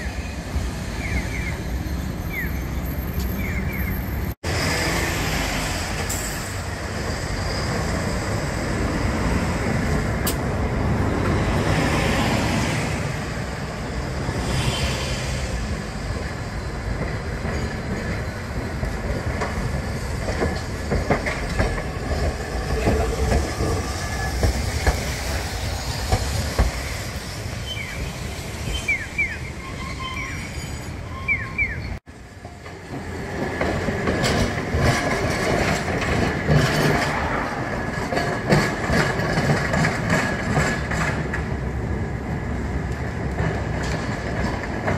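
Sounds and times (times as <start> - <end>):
road traffic: 0.0 - 44.9
streetcar wheels clicking on rail joints: 0.0 - 44.9
wheel squeals: 17.3 - 18.8, 22.2 - 32.0.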